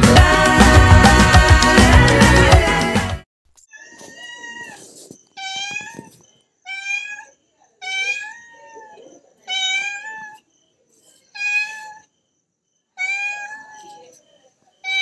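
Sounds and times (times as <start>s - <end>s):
cat meowing: 3.7s - 10.5s, 11.3s - 12.1s, 13.0s - 14.2s.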